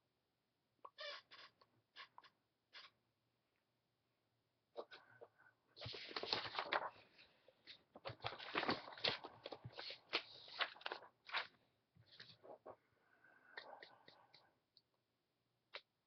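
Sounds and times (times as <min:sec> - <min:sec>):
rustling and crackling: 0:05.8 - 0:12.8.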